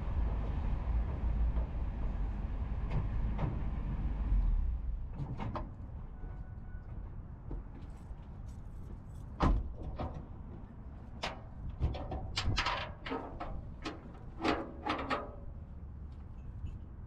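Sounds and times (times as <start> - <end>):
metal clanks and knocks: 9.4 - 15.6.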